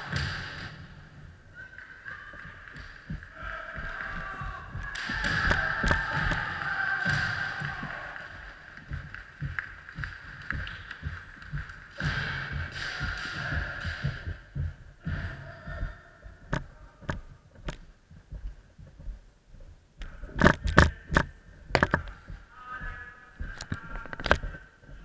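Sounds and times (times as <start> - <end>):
sharp knocks: 2.4 - 19.1
person shouting: 3.4 - 8.4.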